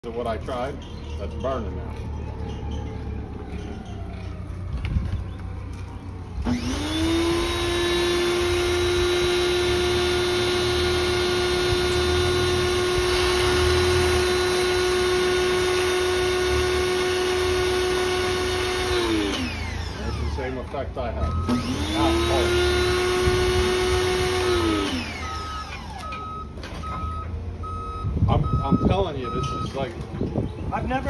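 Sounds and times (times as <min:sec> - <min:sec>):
pressure washer motor: 0:06.4 - 0:20.8, 0:21.4 - 0:26.0.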